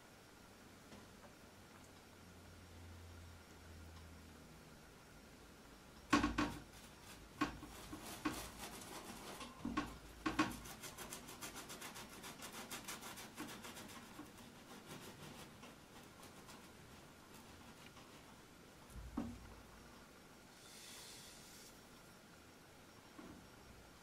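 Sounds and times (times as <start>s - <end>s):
paintbrush scrubbing canvas: 6.8s - 9.6s, 10.3s - 18.4s.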